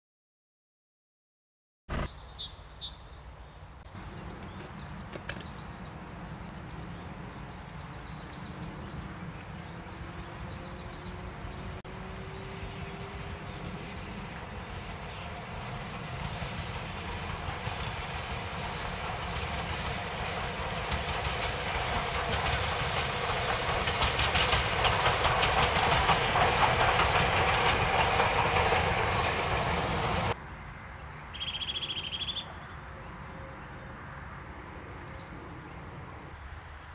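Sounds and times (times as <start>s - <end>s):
birds chirping: 1.9s - 35.4s
steam locomotive chuffing: 9.9s - 30.4s.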